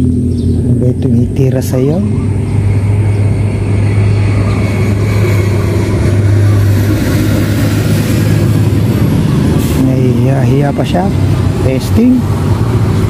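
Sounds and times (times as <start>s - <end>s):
engine droning: 0.0s - 13.0s.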